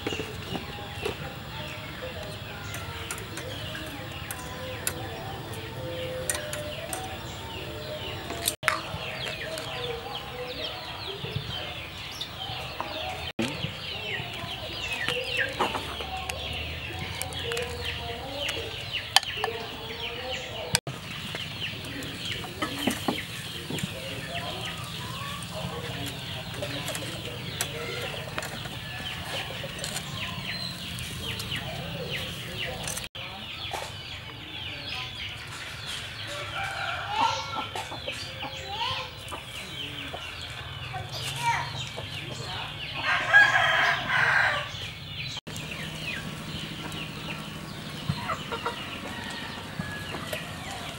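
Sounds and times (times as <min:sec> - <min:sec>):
chickens clucking: 0:00.0 - 0:50.9
rooster clucking: 0:45.5 - 0:50.9.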